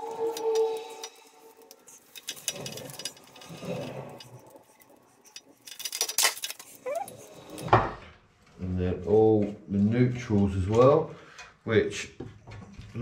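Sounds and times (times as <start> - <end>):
screwdriver clicking on metal screws: 0.3 - 7.6.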